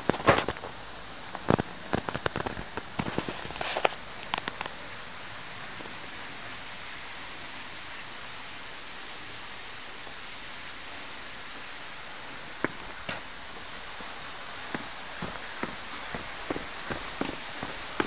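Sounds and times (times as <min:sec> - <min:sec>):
waterfall rushing: 0:00.0 - 0:18.0
footsteps on stone steps: 0:12.5 - 0:18.0.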